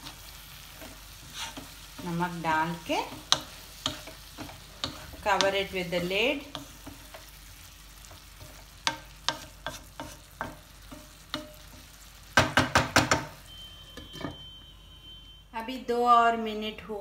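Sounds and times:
metal spoon scraping a pan: 0.0 - 7.4, 8.0 - 12.0
faint sizzle: 0.0 - 17.0.

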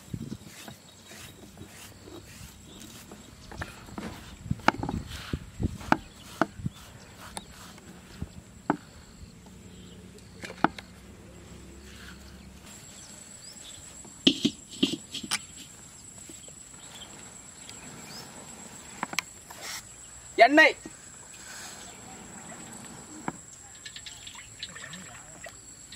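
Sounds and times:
insect chirring: 0.0 - 25.9
stone grinding roller knocking: 14.3 - 15.7.

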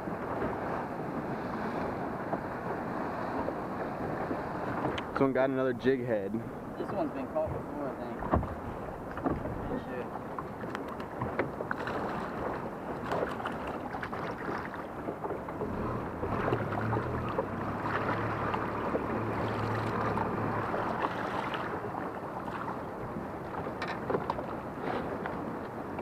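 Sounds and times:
water lapping against a hull: 0.0 - 26.0
wind on the microphone: 6.3 - 14.7
low motor hum: 15.2 - 24.7.

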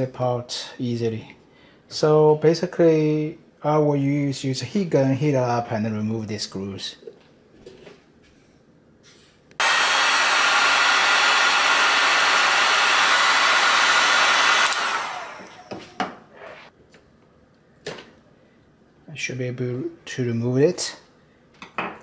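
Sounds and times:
heat gun blowing: 9.6 - 16.0.

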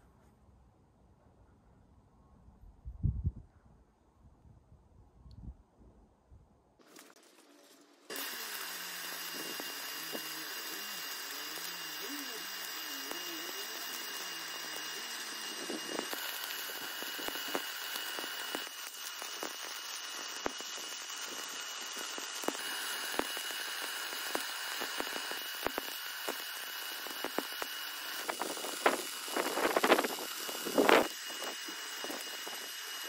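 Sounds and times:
spatter popping: 6.8 - 33.0
welding arc crackling: 6.8 - 33.0.

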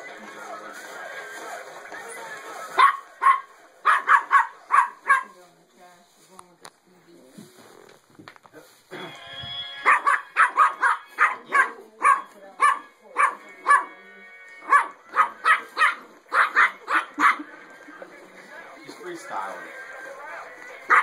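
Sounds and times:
puppy barking: 2.7 - 5.4, 9.8 - 14.0, 14.6 - 17.5.

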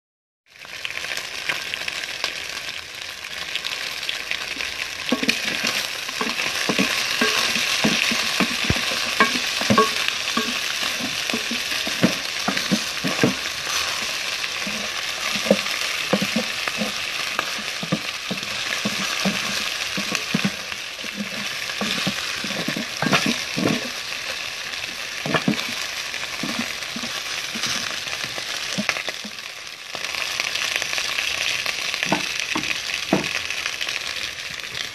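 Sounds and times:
chicken sizzling in a pot: 0.5 - 34.9
wooden spoon scraping a pot: 5.1 - 29.4.

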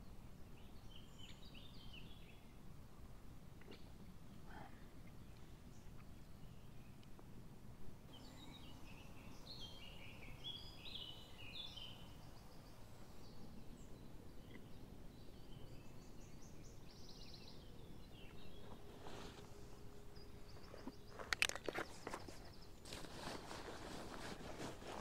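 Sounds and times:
songbirds chirping and trilling: 0.0 - 25.0.

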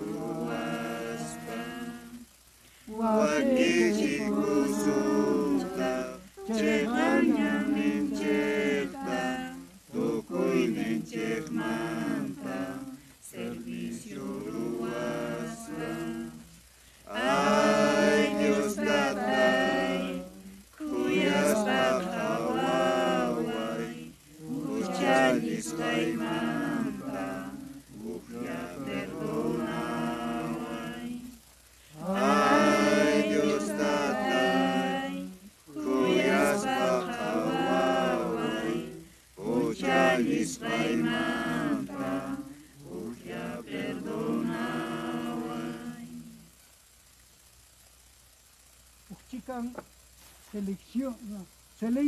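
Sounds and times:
congregation singing a hymn: 0.0 - 2.3, 2.9 - 46.4.

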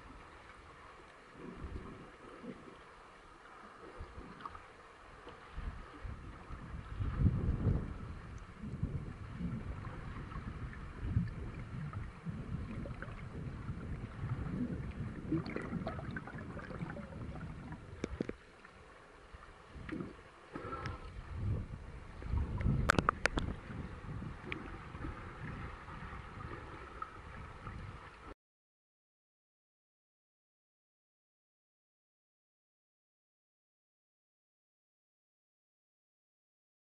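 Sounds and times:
muffled underwater sloshing: 0.0 - 28.4.

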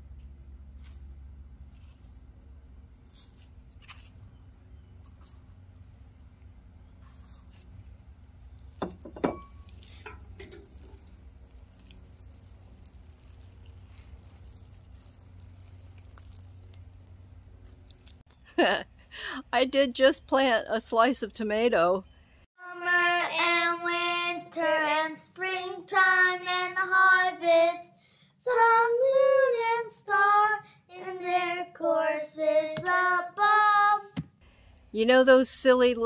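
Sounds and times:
low steady rumble: 0.0 - 24.9.

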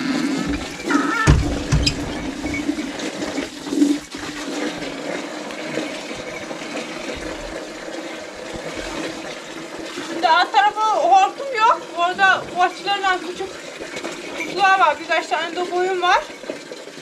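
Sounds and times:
water running: 0.0 - 17.0
low thumps: 0.5 - 2.8.

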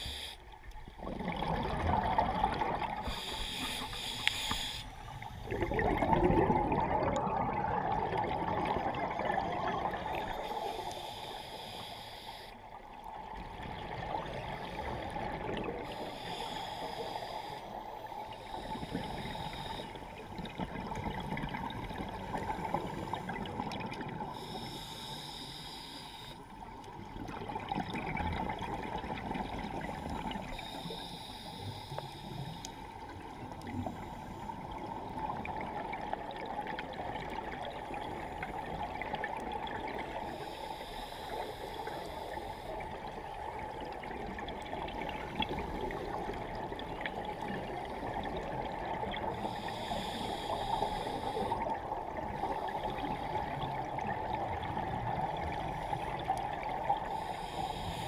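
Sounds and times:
underwater gurgling bubbles: 0.0 - 58.0
high hiss: 3.1 - 5.0.

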